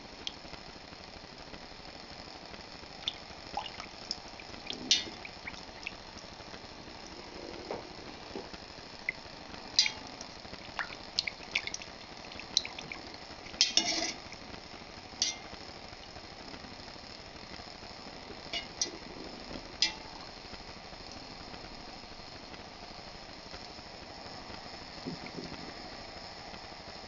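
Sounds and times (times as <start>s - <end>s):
metal whisk clinking in pot: 13.6s - 14.2s.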